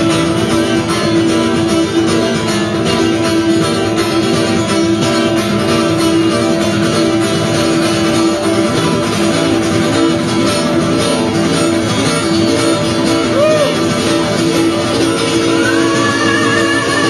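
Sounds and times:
guitar strummed in chords: 0.0 - 17.0.

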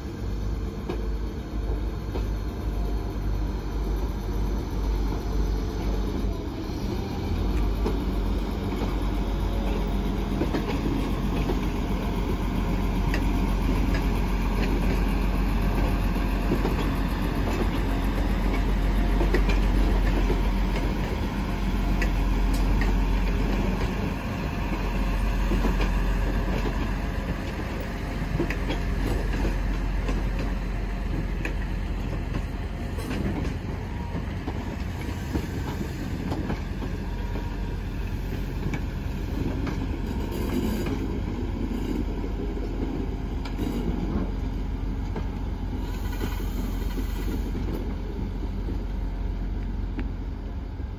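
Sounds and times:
train engine rumble: 0.0 - 50.9
wheels clicking over rail joints: 13.0 - 37.5.

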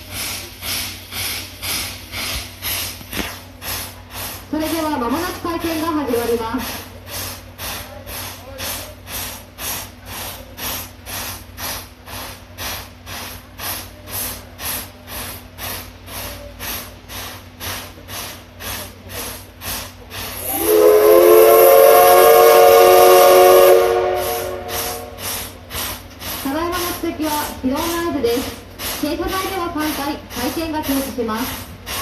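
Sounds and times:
rhythmic steam hissing: 0.0 - 32.0
steam whistle blast: 20.4 - 25.4.

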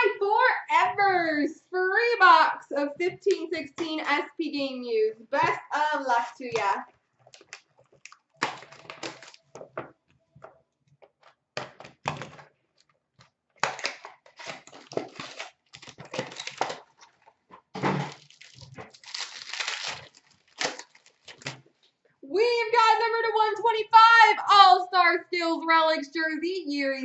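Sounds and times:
cards rustling: 6.4 - 9.8
foil wrapper crinkling: 7.2 - 9.7, 13.6 - 21.8.

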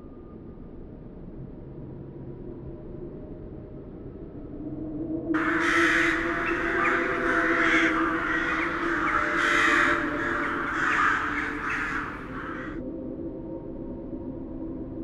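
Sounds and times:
low steady drone: 2.8 - 15.0
crows cawing: 5.4 - 12.8.

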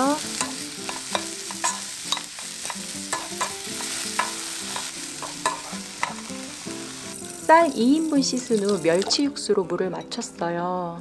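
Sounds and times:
mushrooms sizzling in frying pan: 0.0 - 9.4
spatula scraping and knocking pan: 0.4 - 6.3.

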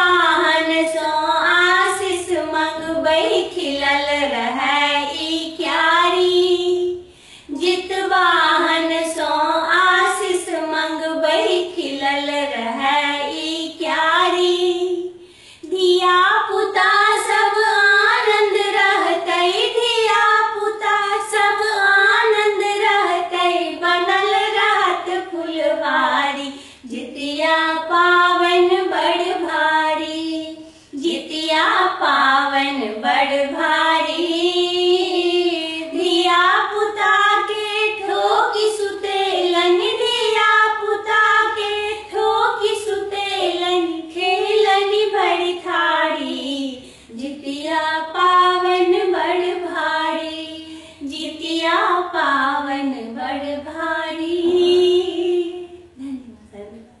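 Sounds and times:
high voice singing folk song: 22.6 - 49.2.

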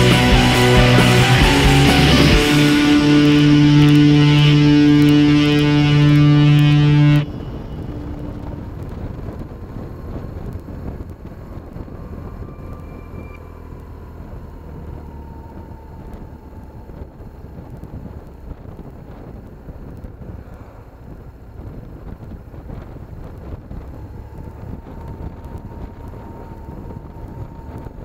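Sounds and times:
guitar rock music: 0.0 - 9.1
motorcycle engine running: 0.0 - 12.5.

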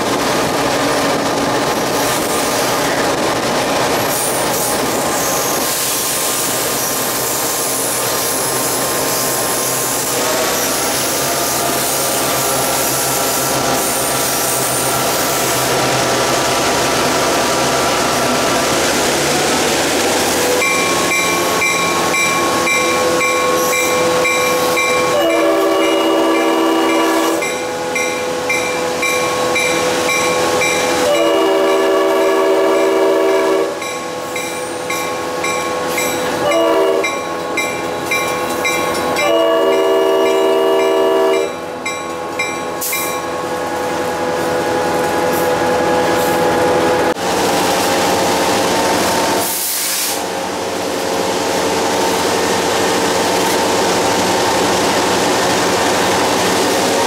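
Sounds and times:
moving train rumble: 0.0 - 57.0
locomotive horn blasts: 25.0 - 27.4, 31.0 - 33.8, 36.4 - 37.2, 39.2 - 41.6.

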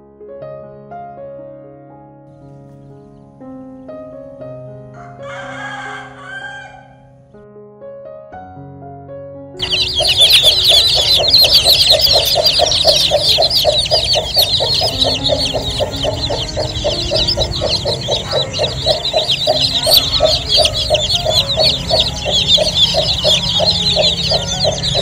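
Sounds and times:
chicks peeping: 9.6 - 25.0
fast low pulsing: 9.6 - 25.0.

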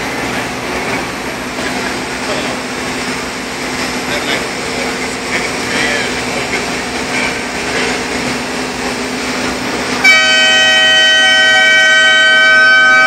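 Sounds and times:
machinery hum: 0.0 - 13.0
multi-tone air horn: 10.0 - 13.0.

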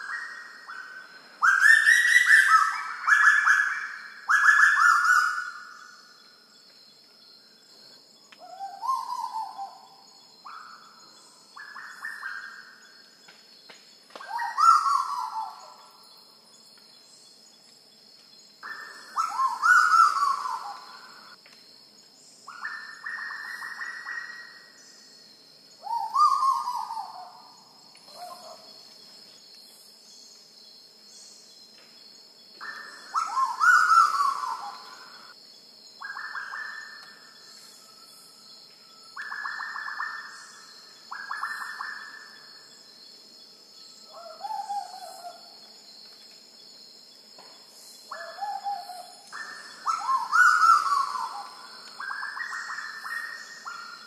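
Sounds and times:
bird calling: 14.2 - 15.8, 18.6 - 21.4, 25.8 - 27.5, 32.6 - 35.3, 48.1 - 54.0.

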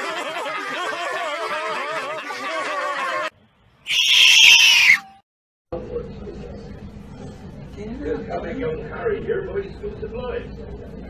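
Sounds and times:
cartoon voices laughing: 0.0 - 3.3
marmot shrill scream: 3.9 - 5.2.

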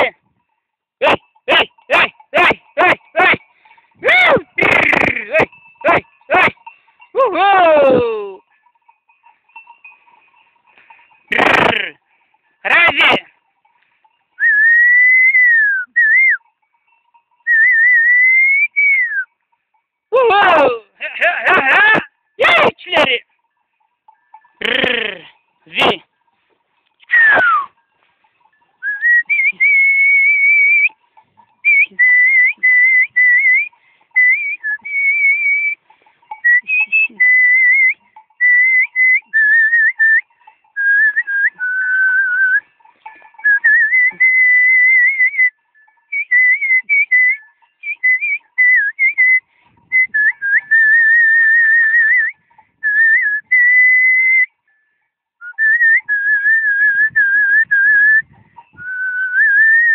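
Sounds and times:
person whistling a melody: 14.4 - 16.4, 17.5 - 19.3, 28.8 - 30.9, 31.6 - 35.8, 36.4 - 42.6, 43.4 - 54.5, 55.4 - 59.9.

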